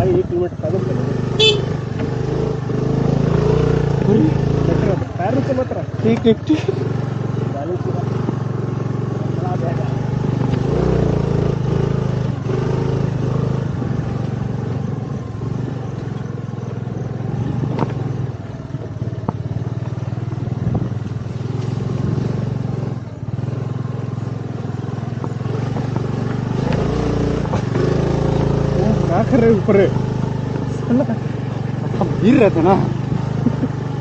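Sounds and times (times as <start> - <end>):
motorbike engine running: 0.0 - 34.0.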